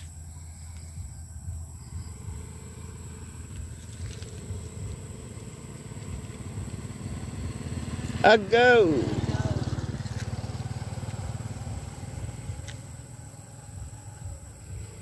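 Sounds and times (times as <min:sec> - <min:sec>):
small motorcycles engine hum: 0:00.0 - 0:15.0.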